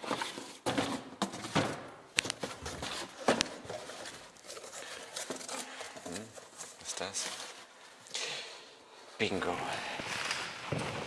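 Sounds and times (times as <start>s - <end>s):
cardboard scraping and rustling: 0.0s - 1.7s.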